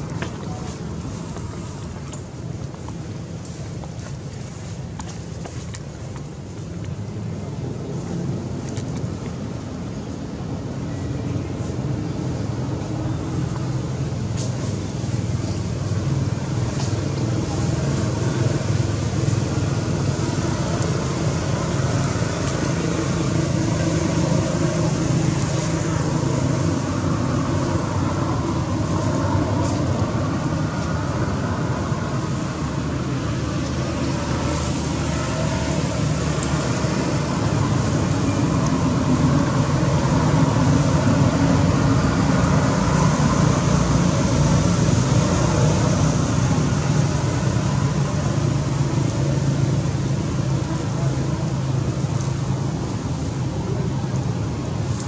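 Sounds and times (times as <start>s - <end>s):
low rumble with hiss: 0.0s - 55.0s.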